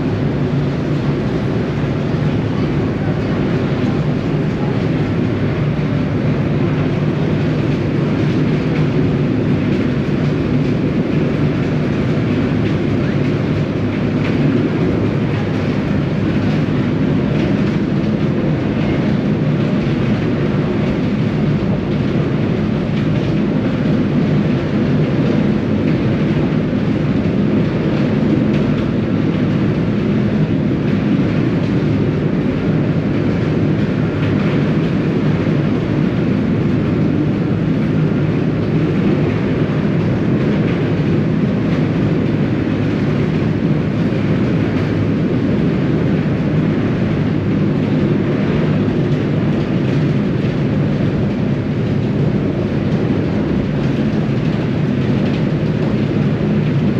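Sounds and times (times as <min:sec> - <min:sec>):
ferry engines droning: 0:00.0 - 0:52.6.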